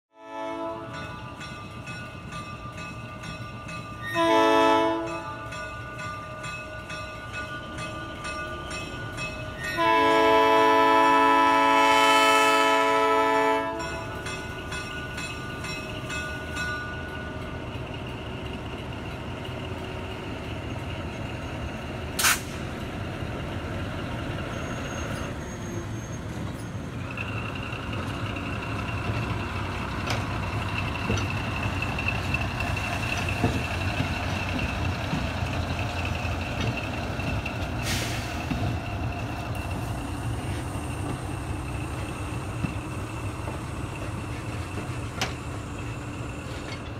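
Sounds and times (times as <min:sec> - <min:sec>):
locomotive horn chord: 0:00.2 - 0:01.2, 0:04.0 - 0:05.6, 0:09.6 - 0:14.2
train cars rumbling on rails: 0:00.2 - 0:46.9
locomotive engine running: 0:00.6 - 0:46.9
thin high squeal: 0:24.5 - 0:27.2.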